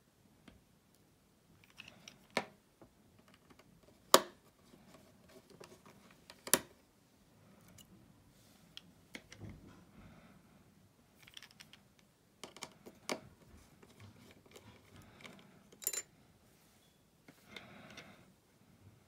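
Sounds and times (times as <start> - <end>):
tools tapping and handling: 11.2 - 16.1.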